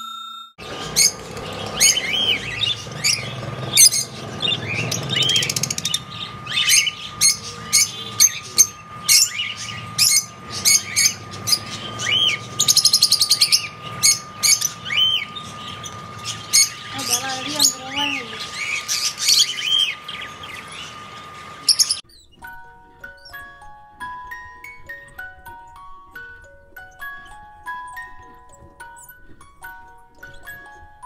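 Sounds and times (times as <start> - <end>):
bird chattering trill: 0.6 - 22.4
birds chirping shrilly: 0.6 - 22.5.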